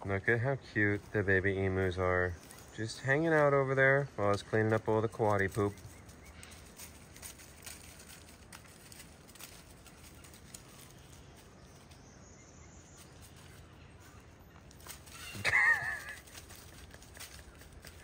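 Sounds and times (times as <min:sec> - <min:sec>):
faint clicks and rustles: 0:04.2 - 0:12.3, 0:12.9 - 0:18.0.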